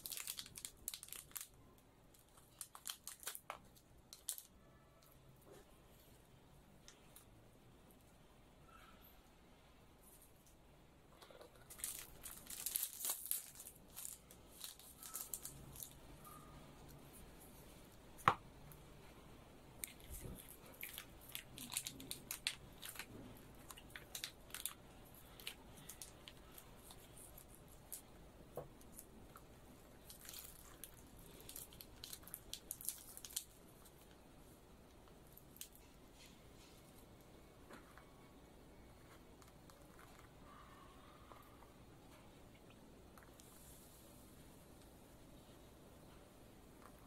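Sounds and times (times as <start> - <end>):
plastic packaging crinkling and tearing: 0.0 - 4.6, 11.2 - 16.5, 19.8 - 28.2, 28.8 - 34.2.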